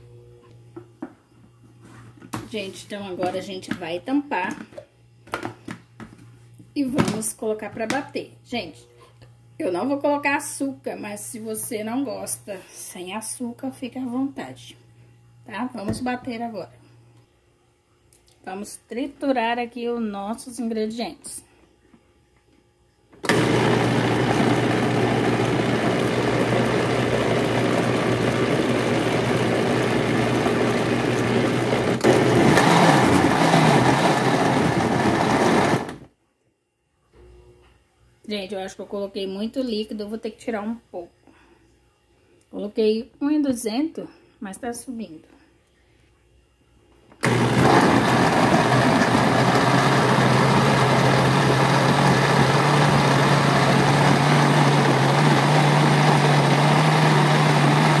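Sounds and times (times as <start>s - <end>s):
electric blender running: 23.2s - 36.1s, 47.2s - 58.0s.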